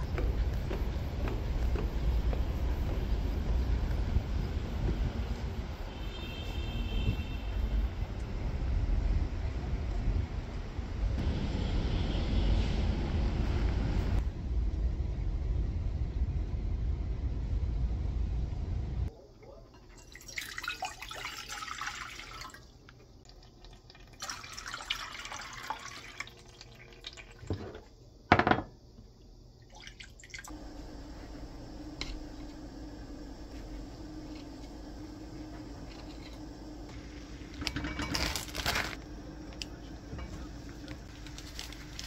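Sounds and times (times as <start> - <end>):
steady low hum: 0.0 - 5.9, 12.7 - 19.3, 30.5 - 42.0
low outdoor rumble: 0.0 - 6.0, 6.6 - 19.3, 30.5 - 42.0
water pouring into metal pot: 19.8 - 27.6.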